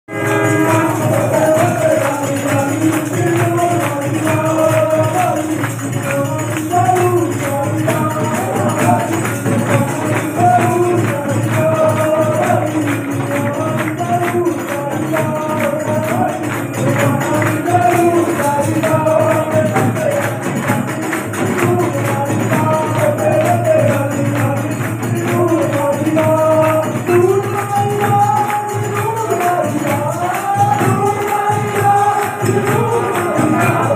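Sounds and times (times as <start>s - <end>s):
congregation clapping: 0.1s - 33.9s
person singing devotional melody: 0.1s - 33.9s
rhythmic hand percussion: 0.1s - 33.9s.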